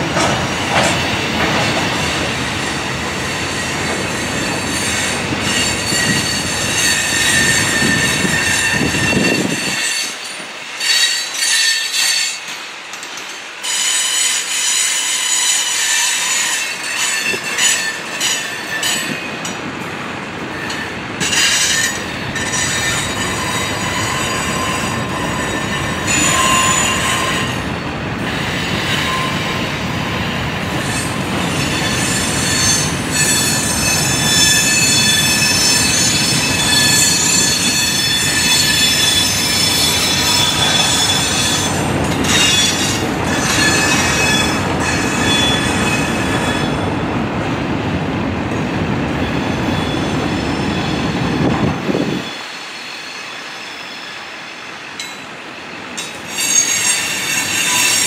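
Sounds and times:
train cars rolling clatter: 0.0 - 58.0
high-pitched wheel squeal: 3.4 - 10.2, 20.6 - 27.6, 30.8 - 46.9, 56.0 - 58.0.

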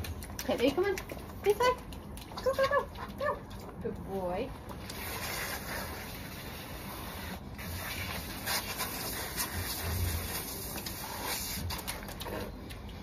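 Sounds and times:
garden hose spraying water: 4.3 - 11.9.

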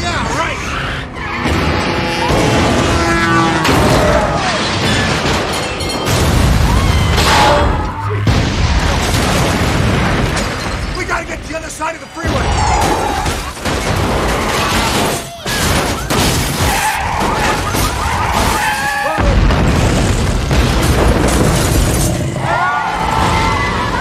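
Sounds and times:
buildings crashing and shattering: 0.0 - 24.0
deep rumbling booms: 3.7 - 11.4, 19.2 - 22.4.

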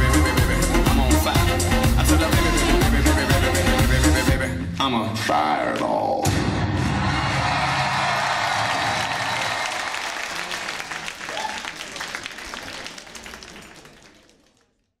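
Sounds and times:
dance music: 0.0 - 9.4
audience applauding: 7.0 - 15.0.

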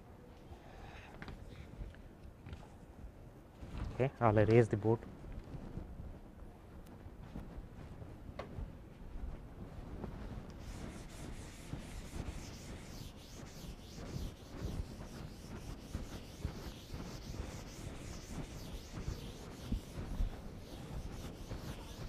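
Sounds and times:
chalk writing on chalkboard: 10.6 - 22.0.

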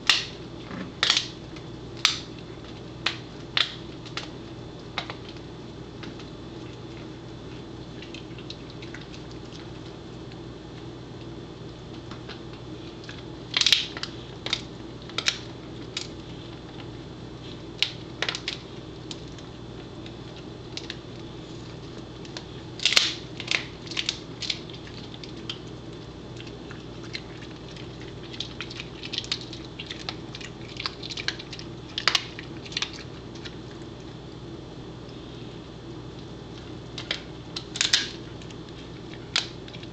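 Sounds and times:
dog chewing crunchy chew: 0.4 - 34.3.

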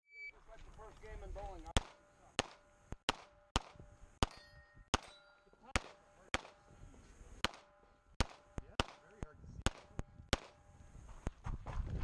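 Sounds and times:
pistol shots: 1.7 - 6.7, 7.4 - 10.7.

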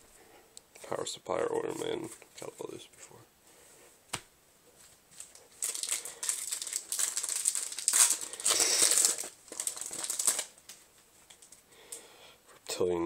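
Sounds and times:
foil wrapper crinkling and tearing: 5.1 - 11.6.

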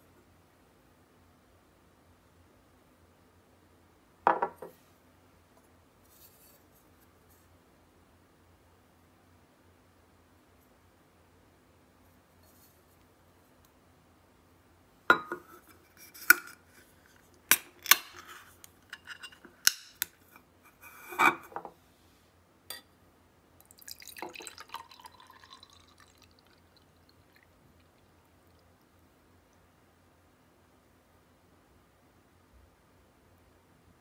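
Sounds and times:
liquid pouring into glass: 23.6 - 28.9.

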